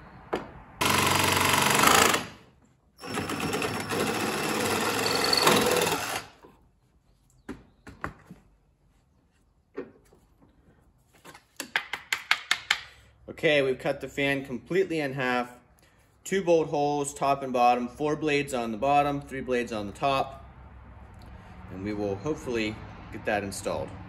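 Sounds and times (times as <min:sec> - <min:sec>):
reciprocating saw cutting plastic: 0:03.0 - 0:06.4.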